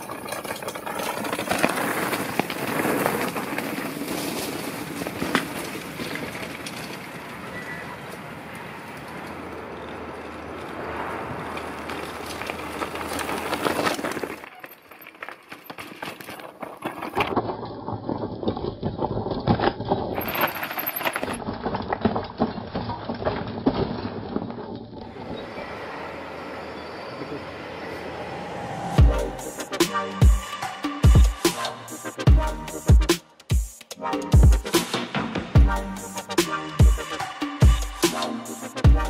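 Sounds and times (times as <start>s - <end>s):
bike chains and frames rattling: 0.0s - 25.2s
tyres crunching over gravel: 0.0s - 26.7s.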